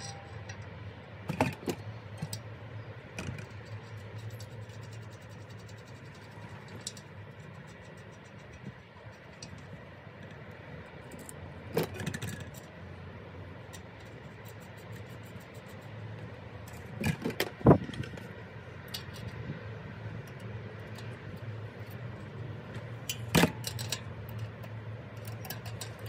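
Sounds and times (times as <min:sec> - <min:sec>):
small metal clinks and taps: 0:00.0 - 0:00.7, 0:03.2 - 0:10.4, 0:20.2 - 0:26.0
steady low hum: 0:00.0 - 0:26.0.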